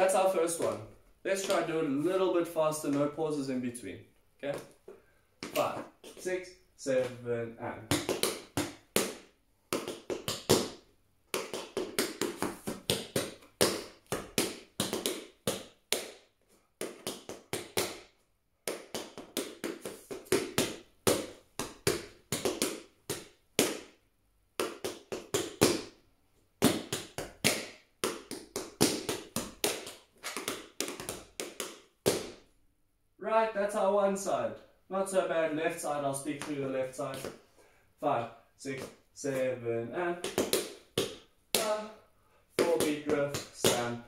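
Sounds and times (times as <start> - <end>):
tap shoes on hard floor: 0.5 - 1.7, 4.4 - 6.3, 7.9 - 16.2, 18.7 - 23.9, 26.6 - 32.4, 40.2 - 41.9, 42.6 - 43.9.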